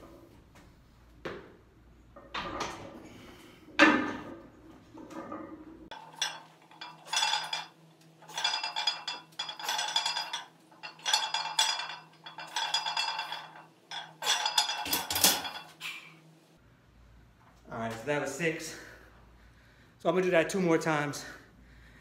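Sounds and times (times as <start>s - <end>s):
weight plates clinking on barbell: 5.9s - 15.7s.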